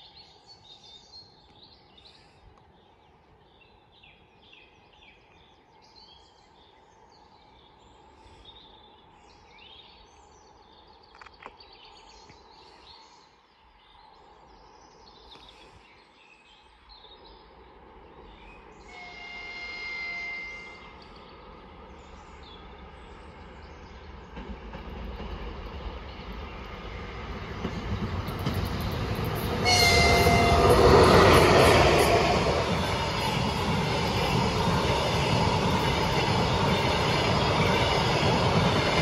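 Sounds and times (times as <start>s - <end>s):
songbirds chirping: 0.0s - 39.0s
locomotive horn: 18.9s - 21.0s, 29.6s - 31.6s.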